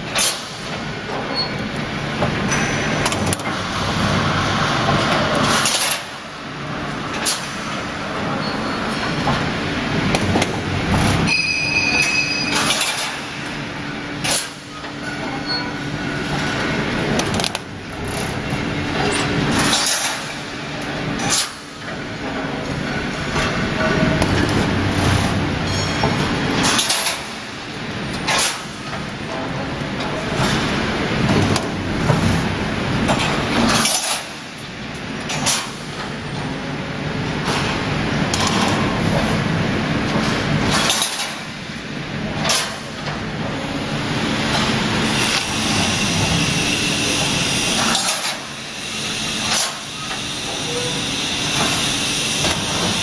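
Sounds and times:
welding machine hum: 9.4 - 11.4, 12.0 - 28.7, 42.5 - 53.0.

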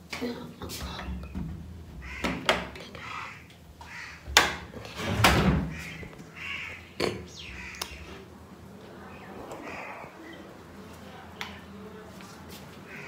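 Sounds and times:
door creaks: 4.2 - 6.2.

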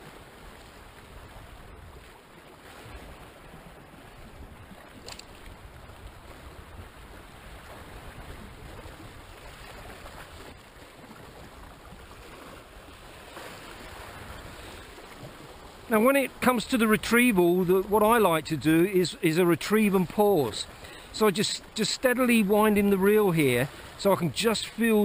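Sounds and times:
wind rumble on microphone: 0.0 - 15.7.

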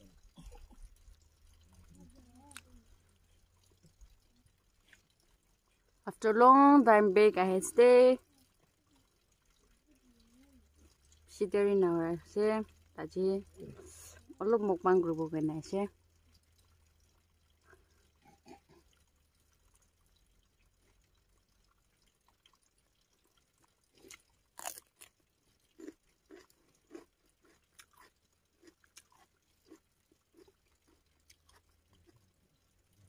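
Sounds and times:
chewing with wet mouth clicks: 0.0 - 6.0, 20.8 - 32.7.

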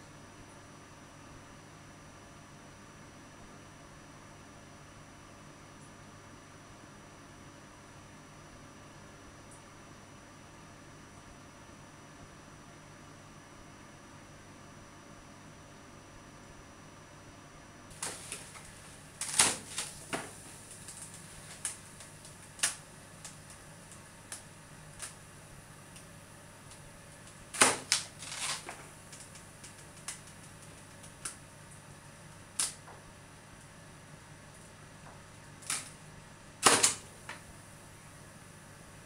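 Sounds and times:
irregular sharp clicks and snaps: 17.9 - 25.3, 25.9 - 32.9, 35.4 - 36.0, 36.6 - 37.5.

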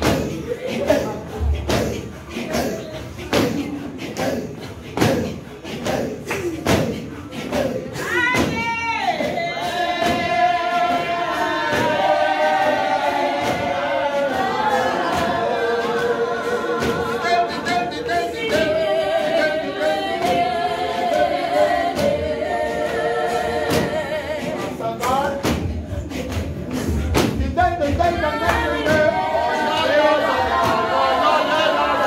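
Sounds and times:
congregation singing a hymn: 0.0 - 32.0.

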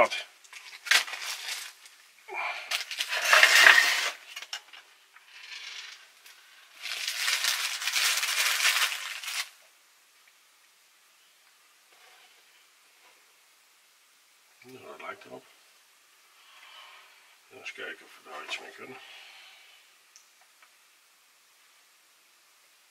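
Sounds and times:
plastic bag crinkling: 0.4 - 2.0, 2.7 - 4.6, 5.3 - 9.6.

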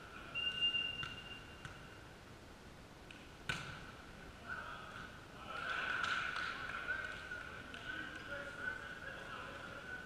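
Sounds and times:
volleyball smack: 3.4 - 3.9.

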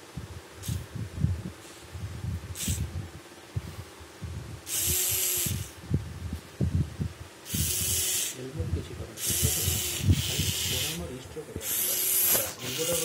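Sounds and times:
servo motors whirring: 2.5 - 2.9, 4.7 - 5.8, 7.4 - 13.0.

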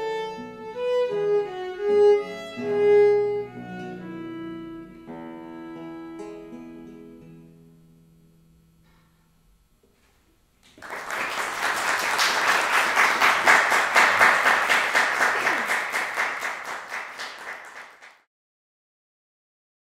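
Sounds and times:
audience applauding: 10.6 - 18.3.

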